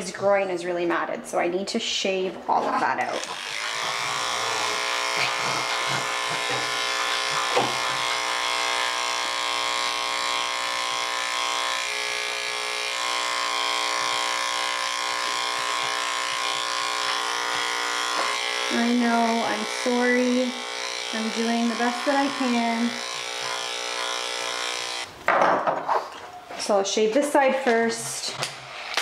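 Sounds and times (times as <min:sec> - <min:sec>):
electric hair clippers buzzing: 0:03.0 - 0:25.1.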